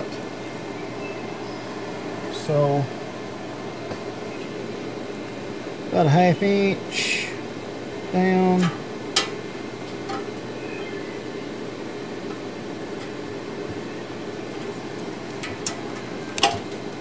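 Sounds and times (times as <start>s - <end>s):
mechanical hum: 0.0s - 17.0s
light clicks and taps on metal: 14.5s - 16.8s.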